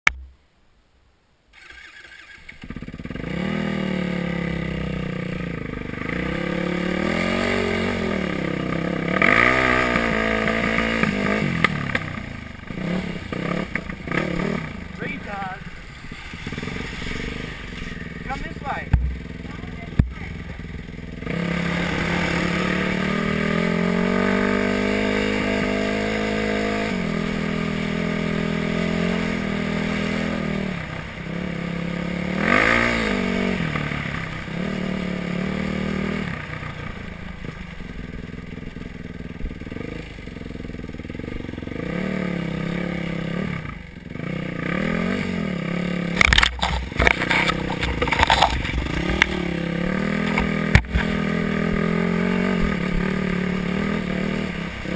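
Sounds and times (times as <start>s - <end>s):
dirt bike engine revving: 1.5s - 54.9s
knocks and clatter: 18.9s - 19.3s.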